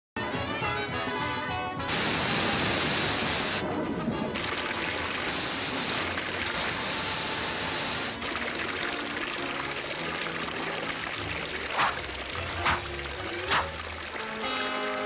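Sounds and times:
music: 0:00.2 - 0:15.0
cartoon water spray hissing: 0:01.9 - 0:03.6, 0:05.2 - 0:08.2, 0:11.7 - 0:13.8.

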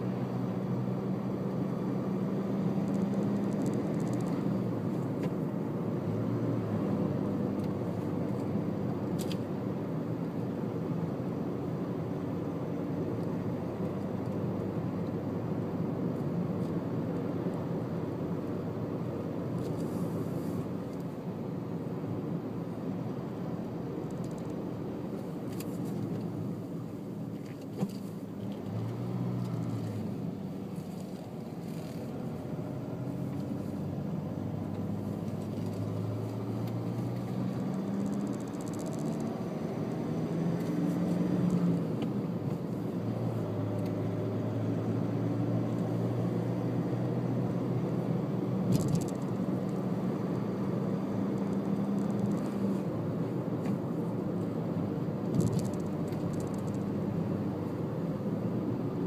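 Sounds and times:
car engine hum: 0:00.0 - 0:59.0
road noise: 0:00.0 - 0:59.0.

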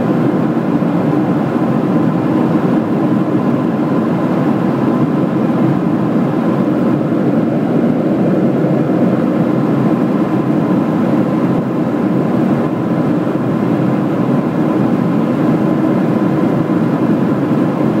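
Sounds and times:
jet engine and airflow noise: 0:00.0 - 0:18.0.

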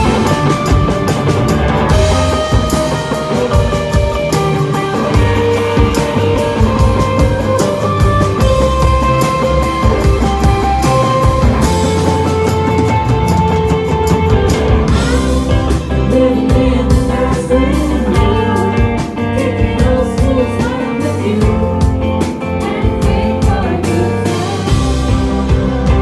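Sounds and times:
drum kit: 0:00.0 - 0:26.0
electric guitar: 0:00.0 - 0:26.0
woman singing: 0:14.9 - 0:26.0.

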